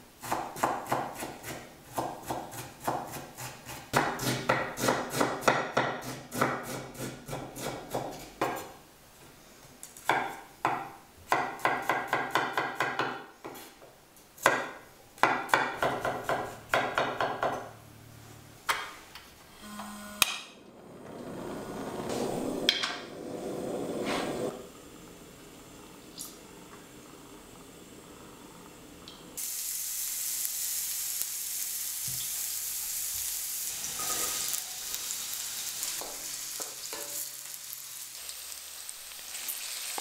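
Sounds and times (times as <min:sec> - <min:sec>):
knife chopping on wooden board: 0:00.2 - 0:08.7, 0:10.1 - 0:13.6.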